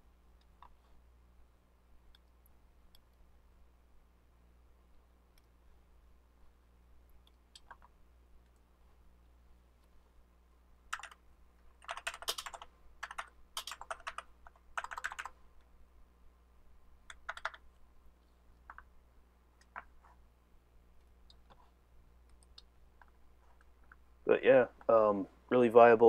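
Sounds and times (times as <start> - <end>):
typing on a keyboard: 7.5 - 7.9, 10.9 - 11.2, 11.8 - 15.4, 17.1 - 17.6.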